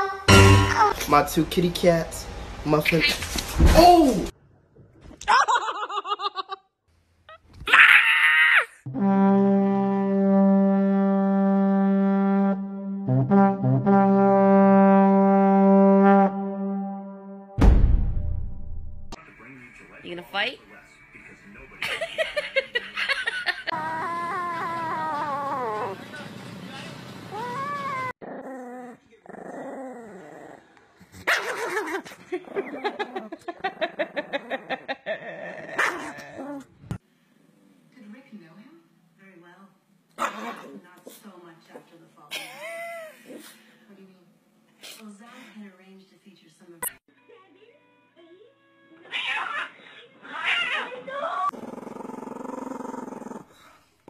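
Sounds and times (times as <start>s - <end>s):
brass instrument low note: 0.3s - 1.1s, 8.9s - 18.3s
small dog growling and yapping: 23.7s - 26.1s, 27.3s - 33.2s, 34.4s - 36.8s, 40.2s - 40.8s, 49.1s - 53.7s.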